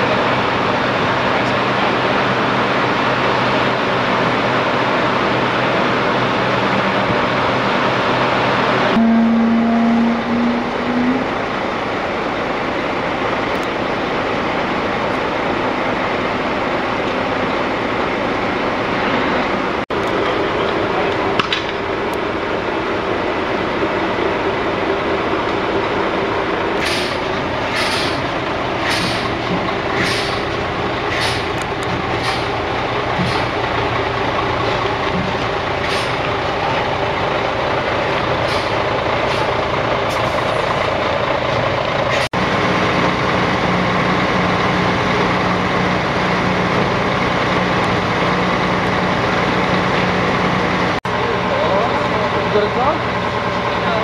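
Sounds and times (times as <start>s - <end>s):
diesel truck engine running: 0.0s - 54.0s
short sharp hisses: 26.8s - 28.2s, 28.8s - 29.3s, 30.0s - 30.4s, 31.1s - 31.5s.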